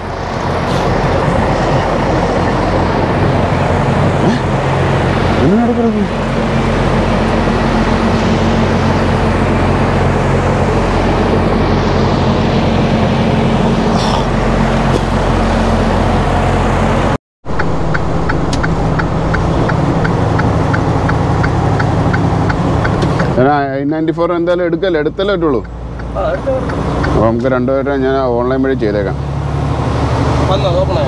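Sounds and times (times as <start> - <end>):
diesel engine running: 0.0 - 31.0
regular ticking: 17.5 - 23.5, 24.4 - 27.6.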